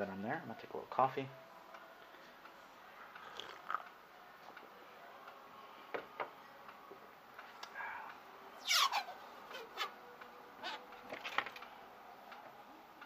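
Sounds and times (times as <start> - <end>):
sipping from a mug: 3.2 - 3.9.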